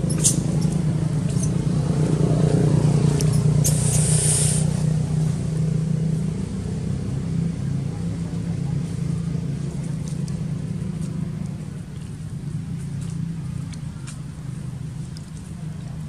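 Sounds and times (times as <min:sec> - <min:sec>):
low engine hum: 0:00.0 - 0:16.0
short hiss: 0:03.6 - 0:04.8.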